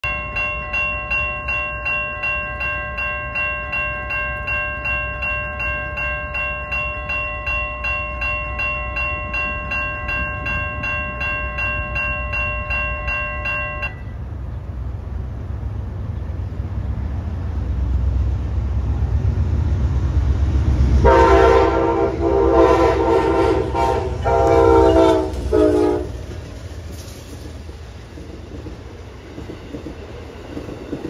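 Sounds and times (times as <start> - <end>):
crossing warning bell ringing: 0.0 - 14.4, 21.0 - 26.6.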